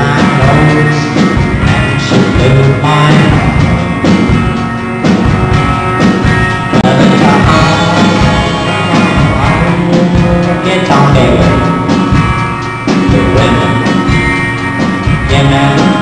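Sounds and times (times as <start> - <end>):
man singing: 0.0 - 4.2, 6.8 - 12.0, 13.0 - 14.2, 15.1 - 16.0
drum kit: 0.0 - 16.0
electric guitar: 0.0 - 16.0.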